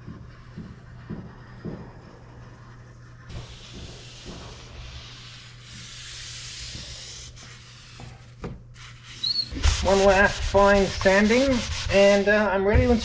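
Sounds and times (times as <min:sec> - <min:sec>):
cloth rubbing on glass: 0:03.3 - 0:13.0.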